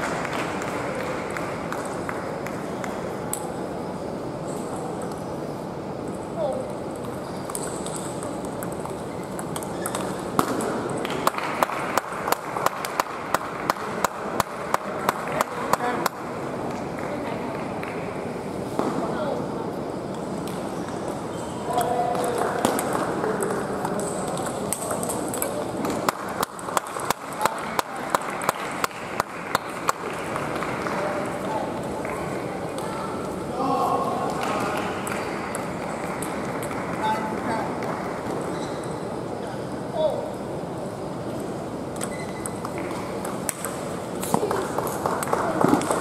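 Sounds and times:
murmur of hall noise: 0.0s - 46.0s
table tennis balls clicking: 6.6s - 16.1s, 21.8s - 31.4s, 34.3s - 39.0s, 41.9s - 46.0s.

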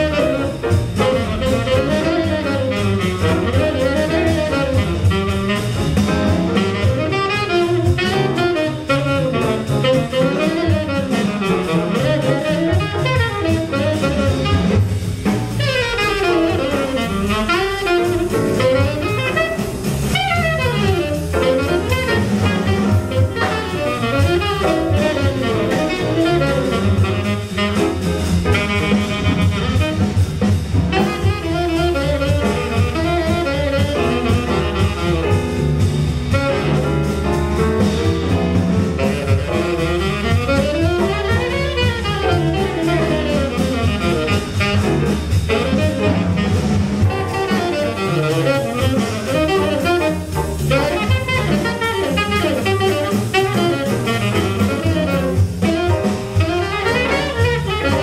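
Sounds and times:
drum kit: 0.0s - 58.0s
grand piano: 0.0s - 58.0s
tenor saxophone fast runs: 0.0s - 58.0s
upright bass: 0.0s - 58.0s.

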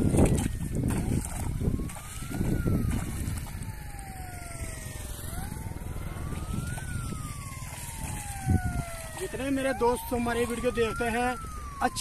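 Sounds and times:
footsteps wading through water: 0.0s - 12.0s
siren wailing: 0.0s - 12.0s.

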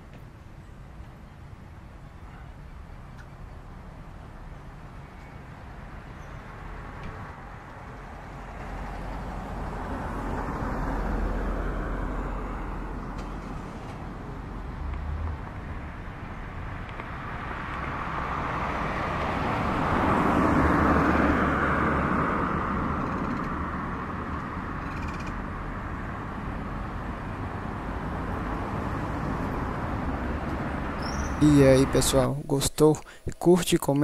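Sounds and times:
traffic noise: 0.0s - 34.0s
vehicle passing: 6.5s - 32.3s.

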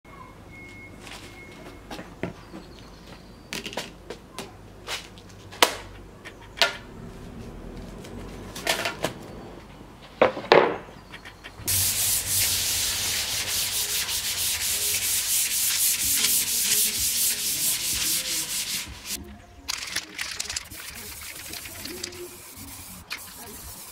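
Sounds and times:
hand sanding board: 11.6s - 19.2s, 20.6s - 23.9s
wooden strips clattering: 17.4s - 22.2s.

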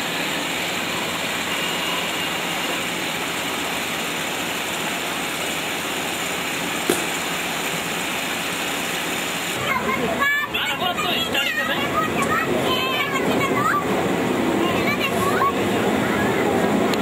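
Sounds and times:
electric fans whirring: 0.0s - 17.0s
sharp knock: 6.9s - 7.2s.

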